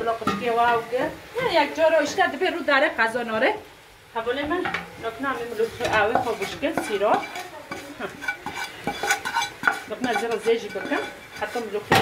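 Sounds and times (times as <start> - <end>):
sizzling: 0.0 - 12.0
wooden spoon scraping a pan: 4.6 - 12.0.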